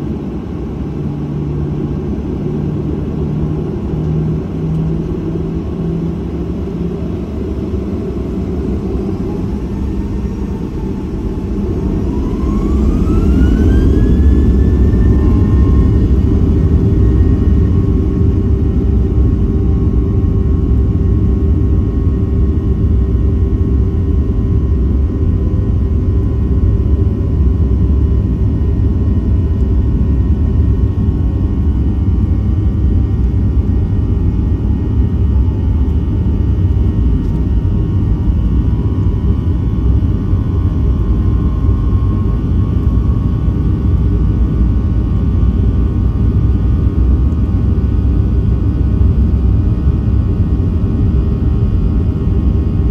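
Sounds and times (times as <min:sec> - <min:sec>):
jet engines rumbling: 0:00.0 - 0:52.9.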